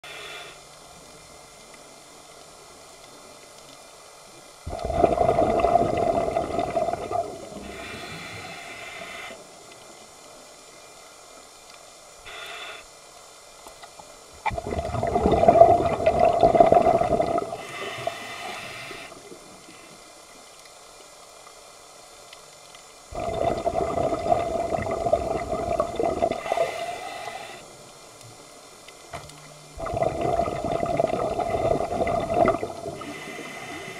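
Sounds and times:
regulator inhalation hiss: 0.0 - 1.1, 7.0 - 10.0, 12.2 - 13.1, 17.4 - 20.2, 26.2 - 28.2, 32.5 - 33.9
exhaled bubbles gushing underwater: 4.7 - 7.8, 14.4 - 17.7, 23.1 - 26.7, 29.7 - 33.3.

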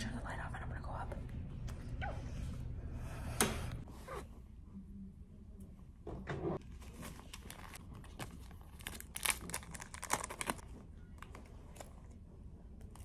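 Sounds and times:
plastic crinkling between fingers: 6.9 - 12.0.

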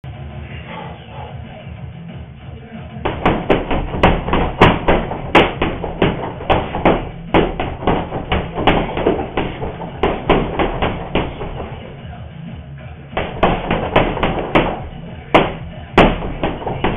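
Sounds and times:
gloves punching heavy bag: 3.0 - 12.1, 13.2 - 16.9.

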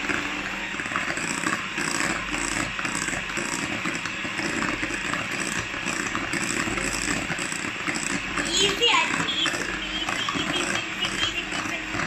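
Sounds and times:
electric hand mixer whisking: 0.0 - 12.0.

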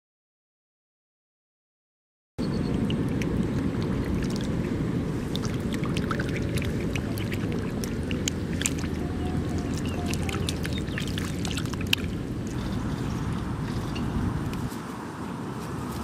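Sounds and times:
steady low rumble: 2.4 - 16.0
fish splashing in water: 2.6 - 14.7.

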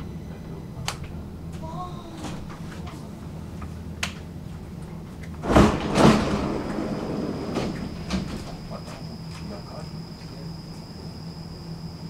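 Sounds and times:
steady high whine: 0.0 - 12.0
train low rumble: 0.0 - 12.0
train wheels thumping over rail joints: 5.4 - 8.8.

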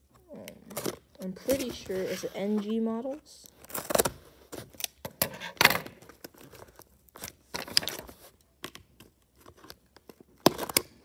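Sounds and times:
packing tape ripped off cardboard: 3.6 - 11.0.

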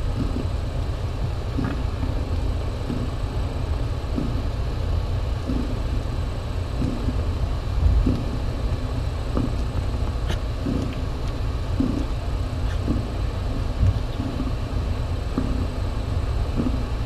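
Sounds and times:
cat purring: 11.8 - 13.1.

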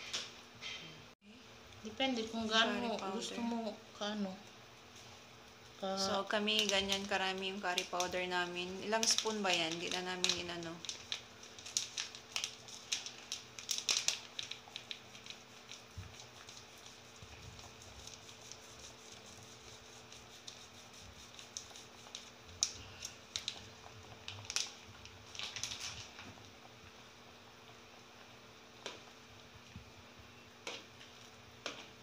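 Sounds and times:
plastic sachet crinkling: 6.2 - 26.2.

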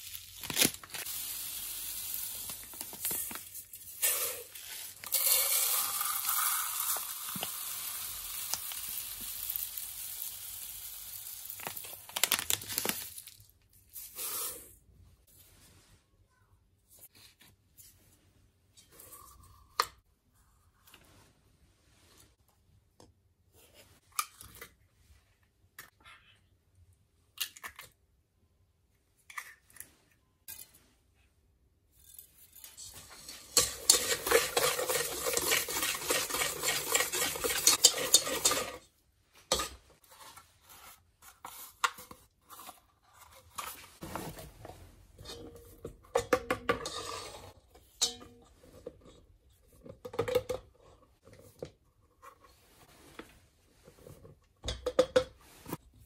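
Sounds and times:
flour packet opening: 0.0 - 1.4, 11.5 - 13.5
whisk beating in metal bowl: 33.3 - 38.8.

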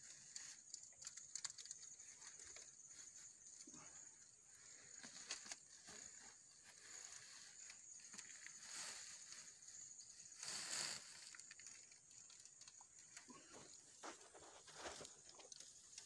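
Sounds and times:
dry fibre rustling and crackling: 0.0 - 16.0
steady high hiss: 6.7 - 11.6
plastic sack rustling: 10.3 - 11.9.

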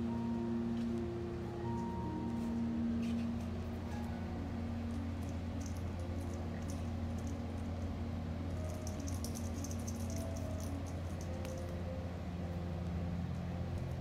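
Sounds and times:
steady low hum: 0.0 - 14.0
cat toy clicks and rattles: 4.9 - 7.7, 8.6 - 11.8.

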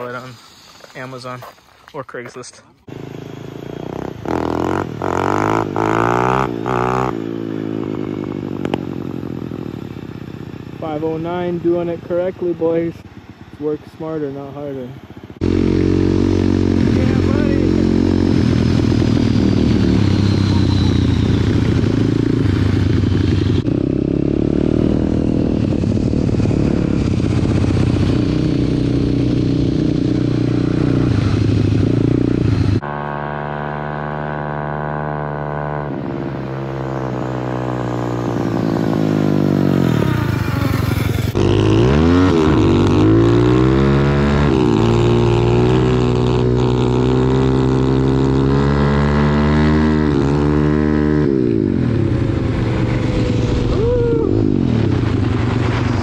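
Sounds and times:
pit bike engine revving: 2.9 - 56.0.

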